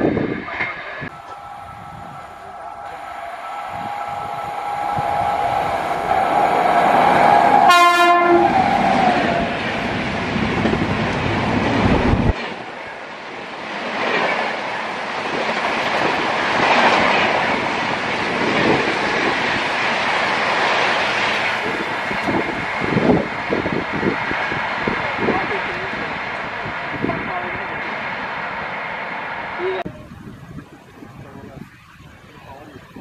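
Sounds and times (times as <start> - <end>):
train rushing and wheel clatter: 0.0 - 33.0
train horn: 1.1 - 9.6.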